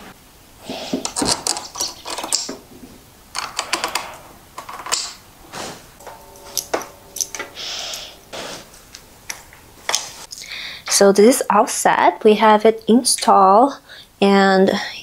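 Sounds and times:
brief ringing tone: 0:06.0 - 0:08.4.

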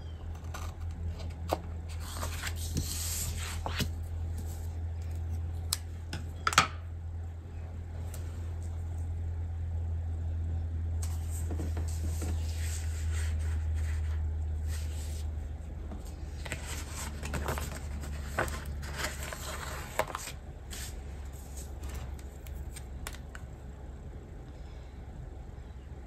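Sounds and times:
low hum: 0:00.0 - 0:26.0
paper sticker sheets rustling: 0:11.0 - 0:15.3, 0:15.9 - 0:23.5.

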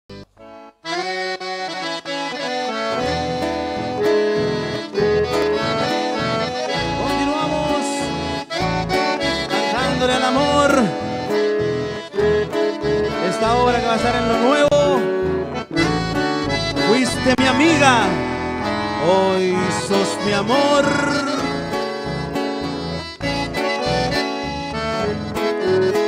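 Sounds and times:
accordion melody: 0:00.1 - 0:26.0
pulsing bass: 0:15.5 - 0:22.4.

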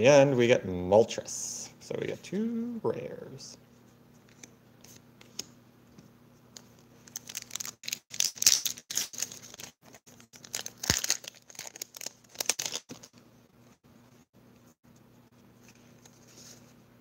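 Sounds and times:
foil pack tearing and crinkling: 0:07.1 - 0:13.2.

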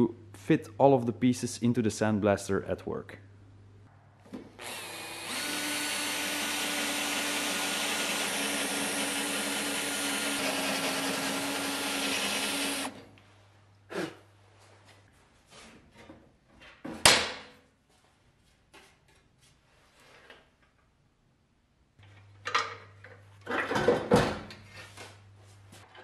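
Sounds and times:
electric drill boring through steel: 0:04.6 - 0:13.0.

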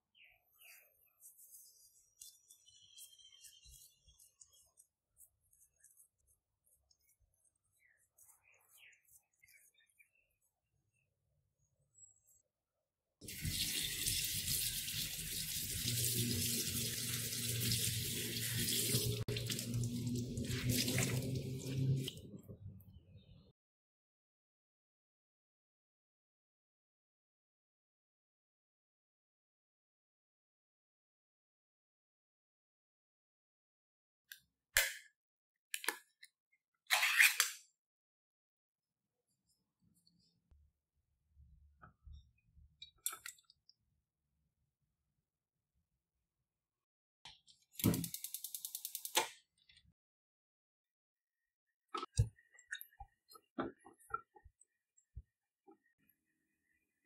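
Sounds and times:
towel being wrung out: 0:15.6 - 0:22.1
small clicks: 0:47.8 - 0:49.4.

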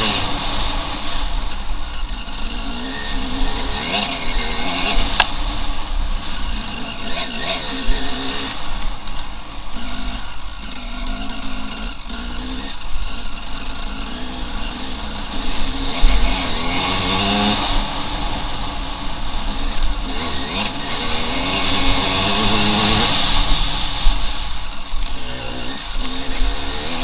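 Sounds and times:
motorcycle engine revving: 0:00.0 - 0:27.0.

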